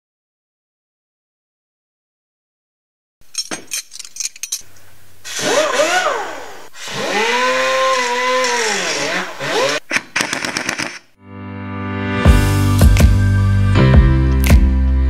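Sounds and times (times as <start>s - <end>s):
motor whirring: 5.3s - 11.0s.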